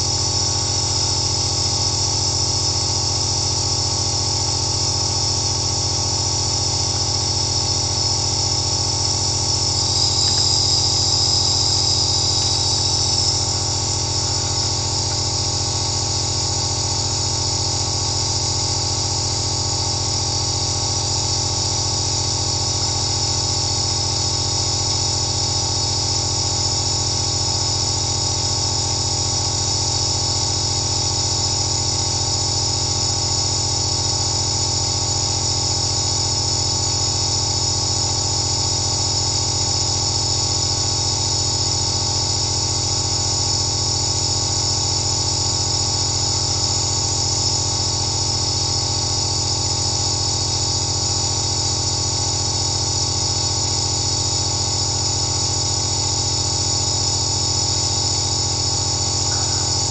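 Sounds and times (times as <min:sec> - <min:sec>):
nebulizer motor hum: 0:00.0 - 0:59.9
hiss of air and mist: 0:09.1 - 0:15.4.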